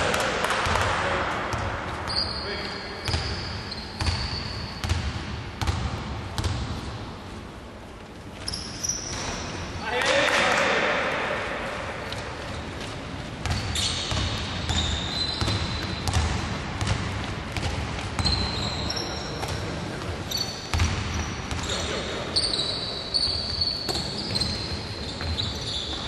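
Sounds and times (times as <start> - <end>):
sneaker squeaks: 1.5 - 5.8, 8.3 - 10.0, 12.4 - 16.9, 17.6 - 26.0
basketball bouncing: 4.0 - 6.8, 13.4 - 18.5, 20.7 - 21.7.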